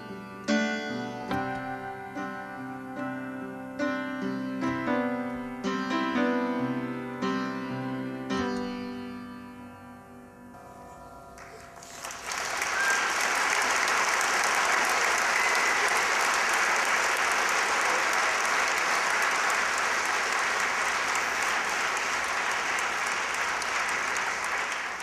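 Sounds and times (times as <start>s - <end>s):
audience applauding: 11.4s - 25.0s.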